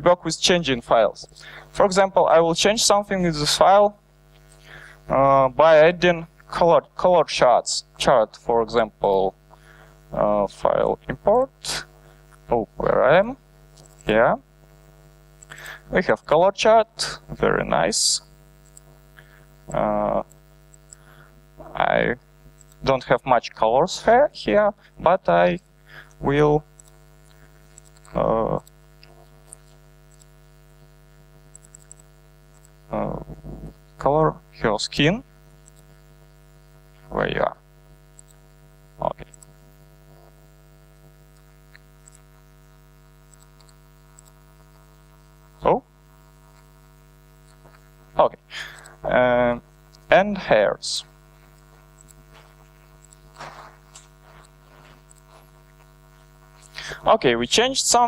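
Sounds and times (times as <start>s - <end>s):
man saying uh: 0.0s - 4.0s, 5.1s - 9.3s, 10.1s - 11.9s, 12.5s - 13.4s, 14.1s - 14.4s, 15.5s - 18.3s, 19.7s - 20.3s, 21.6s - 22.2s, 22.9s - 25.6s, 26.2s - 26.6s, 28.1s - 28.6s, 32.9s - 35.2s, 37.1s - 37.6s, 45.6s - 45.9s, 48.2s - 51.1s, 56.8s - 58.0s
electrical mains hum: 0.0s - 58.0s
faint clicks: 18.6s - 19.3s, 20.2s - 21.1s, 22.6s - 22.8s, 26.8s - 30.3s, 31.5s - 32.7s, 35.6s - 35.9s, 38.2s - 38.4s, 39.2s - 39.5s, 41.4s - 42.2s, 43.3s - 44.4s, 51.5s - 52.2s.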